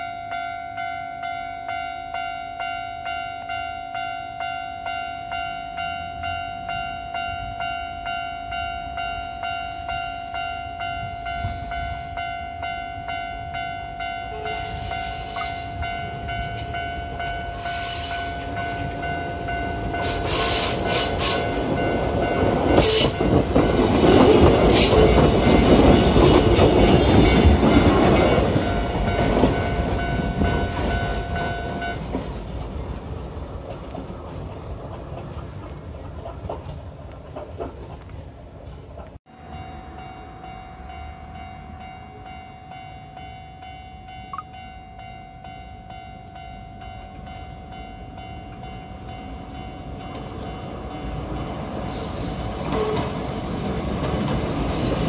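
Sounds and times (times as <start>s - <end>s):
level-crossing warning bell: 0.0s - 32.4s, 39.3s - 55.0s
electric train passing: 0.0s - 55.0s
wheels clanking over rail joints: 14.4s - 39.6s, 48.4s - 55.0s.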